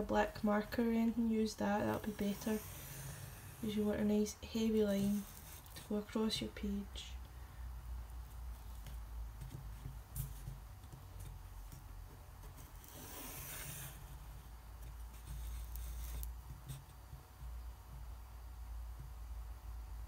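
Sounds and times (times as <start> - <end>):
pencil scratching on paper: 1.8 - 6.1, 15.1 - 17.0.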